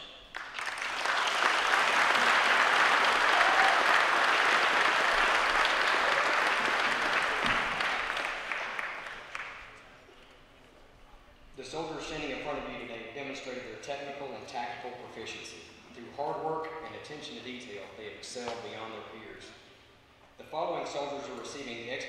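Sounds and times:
audience applauding: 0:00.3 - 0:09.8.

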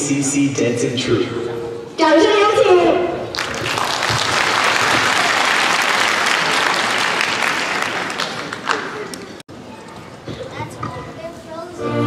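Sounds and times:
audience applauding: 0:03.3 - 0:09.4.

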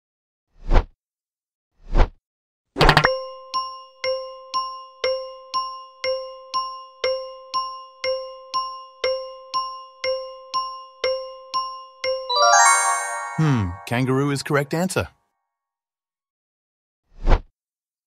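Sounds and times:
timer ding ticking: 0:02.9 - 0:14.4.

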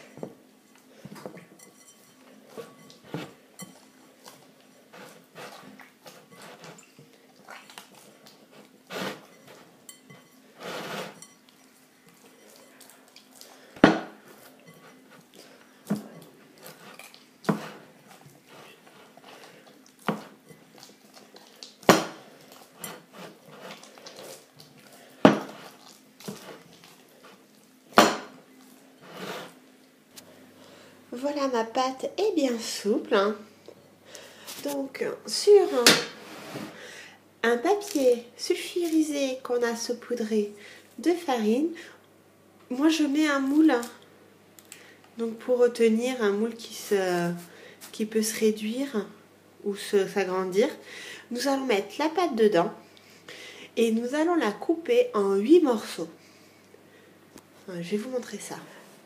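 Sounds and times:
hands kneading dough: 0:00.0 - 0:29.6.

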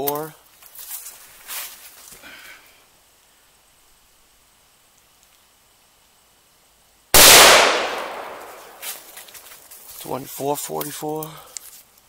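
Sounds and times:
faint background hiss: 0:00.0 - 0:12.0
faint ticks: 0:04.9 - 0:05.5.

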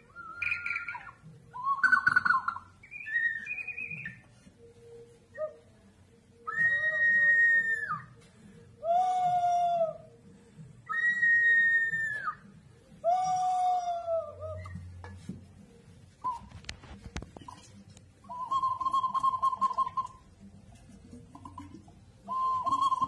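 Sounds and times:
ceramic whistling vessels hooting: 0:00.0 - 0:05.8, 0:06.4 - 0:08.2, 0:10.9 - 0:15.0, 0:16.2 - 0:16.8, 0:17.5 - 0:20.5, 0:21.3 - 0:23.0.

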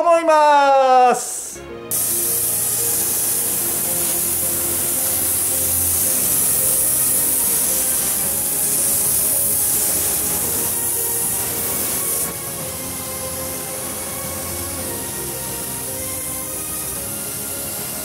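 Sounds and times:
background music: 0:00.0 - 0:18.0
paint spray gun hissing: 0:01.9 - 0:18.0.

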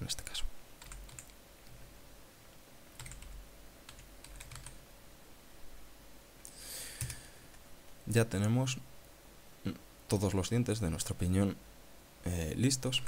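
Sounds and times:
soft hiss: 0:00.0 - 0:13.0
keyboard keys clicking: 0:00.8 - 0:01.4, 0:03.0 - 0:04.8.

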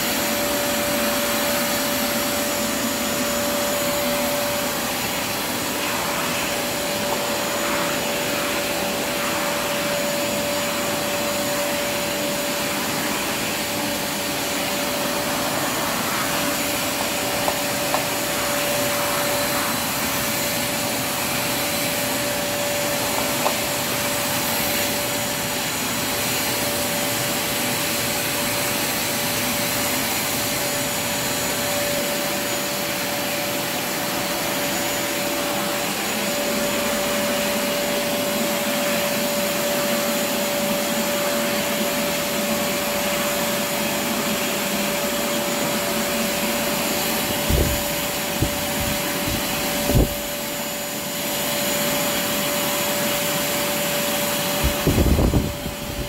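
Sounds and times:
vacuum cleaner running: 0:00.0 - 0:56.0.

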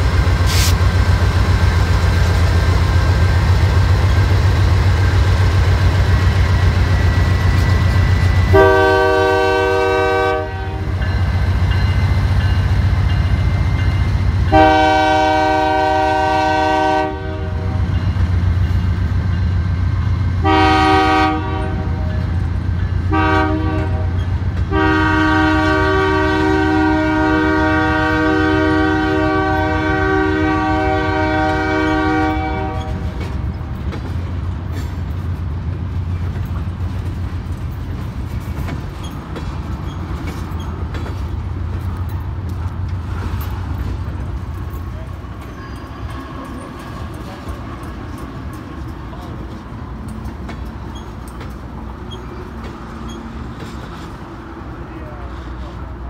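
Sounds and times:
freight train cars rumbling: 0:00.0 - 0:56.0
locomotive air horn blasts: 0:08.5 - 0:11.0, 0:14.5 - 0:17.9, 0:20.4 - 0:22.2, 0:23.1 - 0:33.2.

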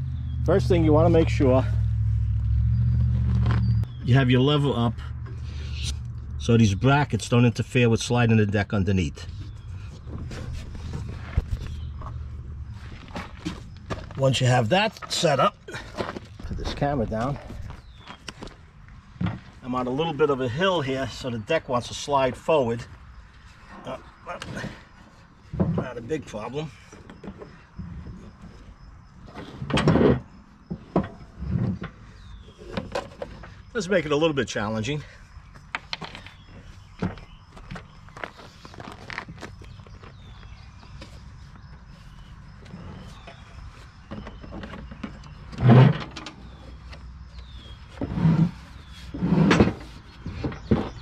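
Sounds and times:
mower deck scraping on wood: 0:09.4 - 0:19.6, 0:29.2 - 0:33.8, 0:42.0 - 0:51.0.

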